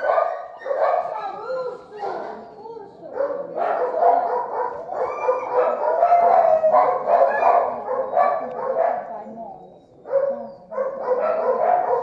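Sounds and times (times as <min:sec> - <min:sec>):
many dogs barking and howling: 0:00.0 - 0:12.0
dog howl drawn-out: 0:04.9 - 0:07.8.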